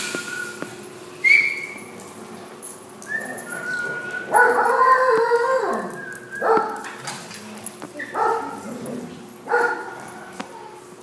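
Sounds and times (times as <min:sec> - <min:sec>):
dogs whining: 0:00.0 - 0:02.1, 0:03.0 - 0:06.9.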